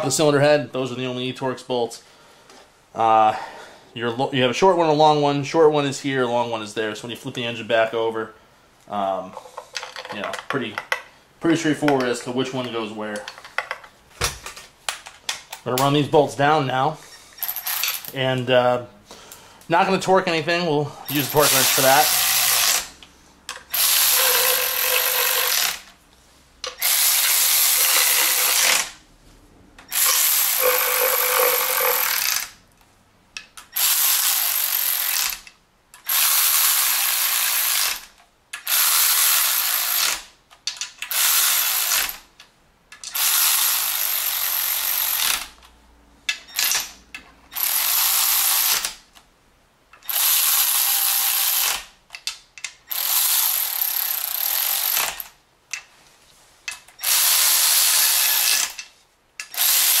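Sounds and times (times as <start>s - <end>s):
electric ratchet whirring: 17.4s - 18.2s, 21.1s - 26.0s, 26.7s - 29.0s, 29.8s - 32.6s, 33.7s - 40.3s, 41.0s - 42.3s, 43.0s - 45.6s, 46.5s - 49.0s, 50.0s - 51.9s, 52.8s - 55.3s, 57.0s - 60.0s.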